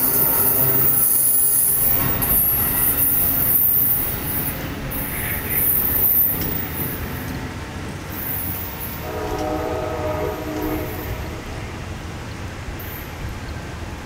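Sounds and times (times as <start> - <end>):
train horn: 0.0 - 2.2, 8.6 - 11.9
high-pitched wheel squeal: 0.0 - 7.0
train wheels rumbling: 0.0 - 14.0.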